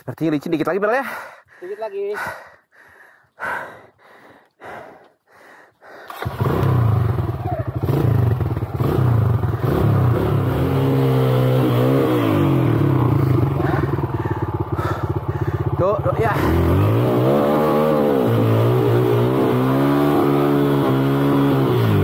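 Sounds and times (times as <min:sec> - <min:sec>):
person breathing: 0:01.0 - 0:06.4, 0:13.2 - 0:15.8
motorcycle engine revving: 0:06.1 - 0:22.0.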